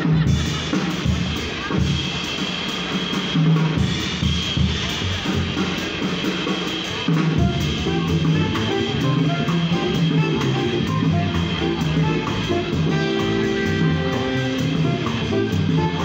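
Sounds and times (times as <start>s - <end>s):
drum kit cymbals: 0.0s - 16.0s
electric keyboard: 7.4s - 16.0s.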